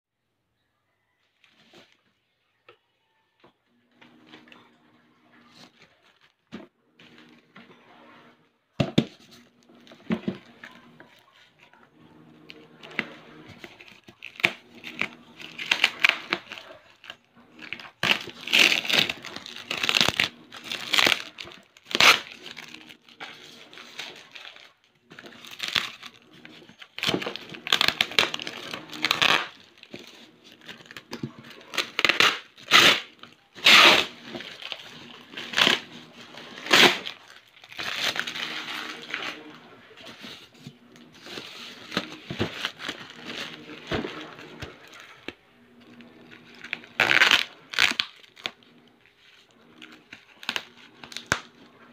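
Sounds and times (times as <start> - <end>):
bubble wrap crinkling and tearing: 9.8 - 40.5, 41.1 - 51.7.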